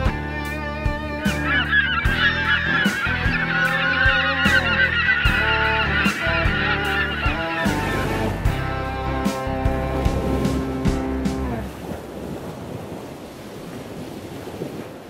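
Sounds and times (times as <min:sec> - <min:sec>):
background music with steady beat: 0:00.0 - 0:11.6
flock of waterbirds calling: 0:01.0 - 0:10.6.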